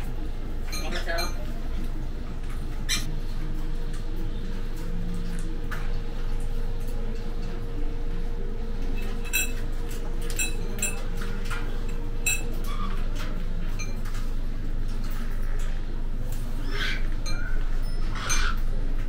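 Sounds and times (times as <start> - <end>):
tableware clinking: 9.0 - 11.5.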